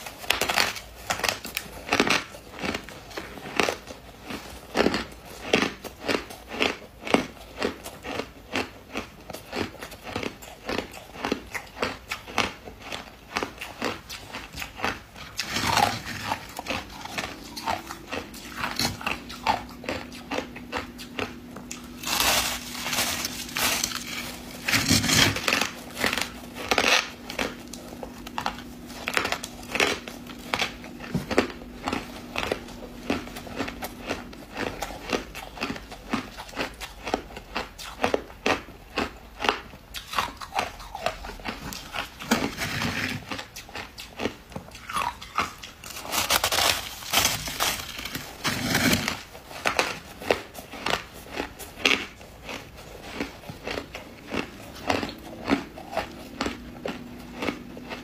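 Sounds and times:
ice being chewed: 0.0s - 58.0s
packed ice crumbling: 15.3s - 20.8s, 21.6s - 36.7s, 45.8s - 50.0s.

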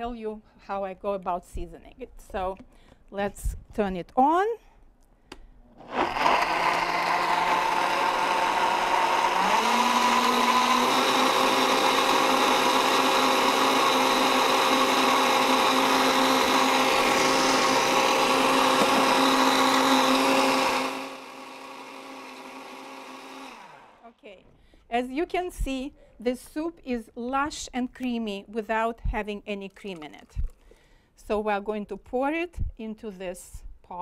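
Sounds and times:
blender motor whining: 5.7s - 24.1s.

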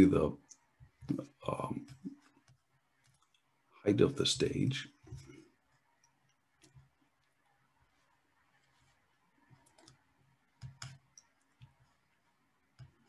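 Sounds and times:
computer mouse clicks: 9.5s - 11.8s, 12.8s - 13.0s.

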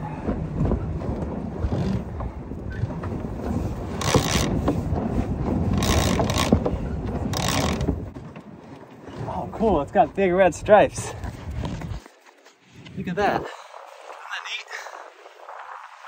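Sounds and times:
rope running through hands: 0.0s - 8.0s, 11.0s - 13.0s
wind rumble on microphone: 0.0s - 16.0s.

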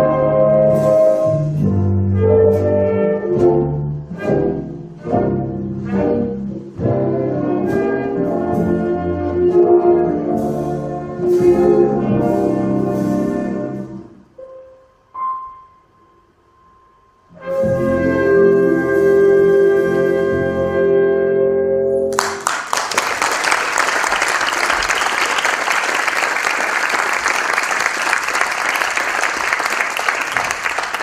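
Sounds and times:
brass: 0.0s - 14.4s, 17.3s - 22.1s
double bass: 0.0s - 14.4s, 17.3s - 22.1s
saxophones: 0.0s - 22.1s
piano: 0.0s - 31.0s.

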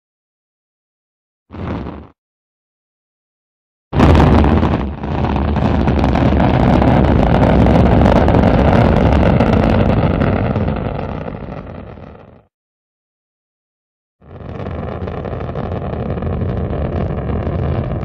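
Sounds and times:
rocket engine rumbling: 4.0s - 12.2s, 14.2s - 18.0s.

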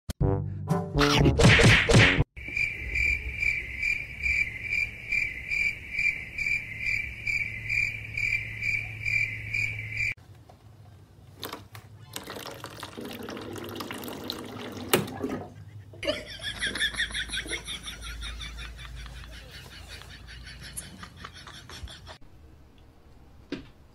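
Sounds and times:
high pulsing chirping: 2.4s - 10.2s.

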